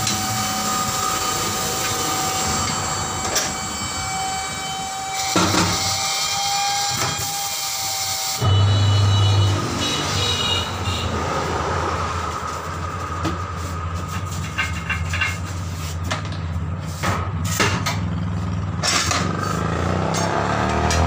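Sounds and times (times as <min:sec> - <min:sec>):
turntable motor humming: 0:08.4 - 0:11.2
sharp metal clanks: 0:18.8 - 0:21.0.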